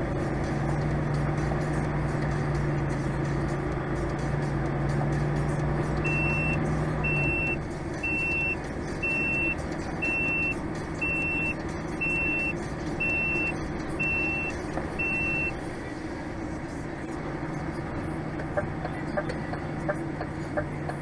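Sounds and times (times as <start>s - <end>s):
low engine hum: 0.0s - 21.0s
reversing alarm beeping: 6.0s - 15.6s.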